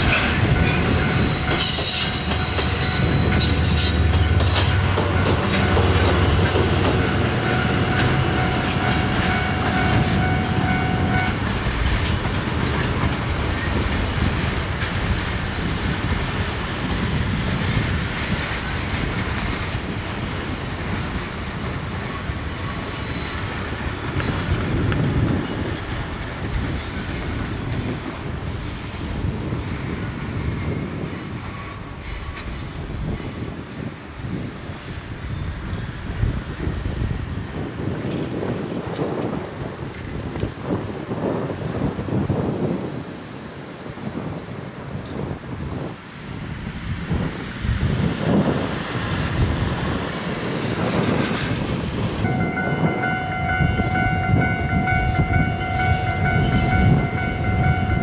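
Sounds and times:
wagons clacking over rail joints: 0:00.0 - 0:15.1
high squeal: 0:00.1 - 0:04.9.

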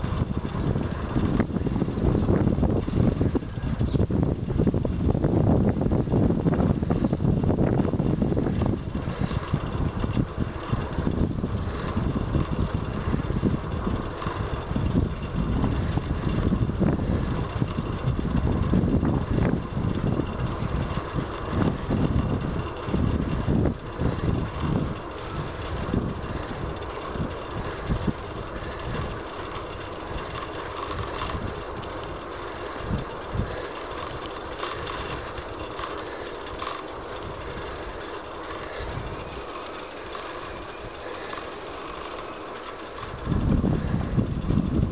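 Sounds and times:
bicycle tyres rolling rumble: 0:00.0 - 0:44.9
wind buffeting microphone: 0:00.0 - 0:44.9.

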